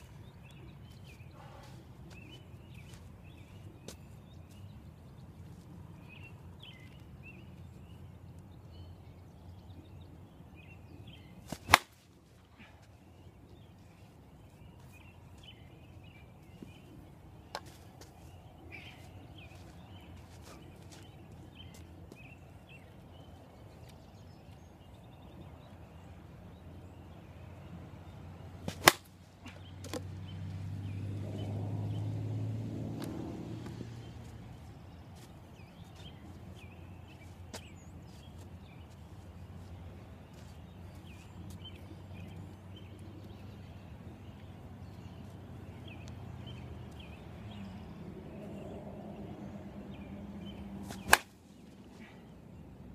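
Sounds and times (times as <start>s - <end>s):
bat cracking a softball: 11.5s - 12.0s, 28.6s - 30.1s, 50.8s - 51.4s.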